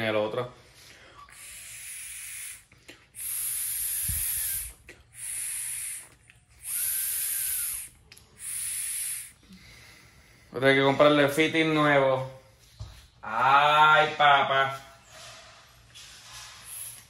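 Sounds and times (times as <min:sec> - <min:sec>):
air hissing through a nozzle: 0:01.3 - 0:09.4, 0:16.0 - 0:17.0.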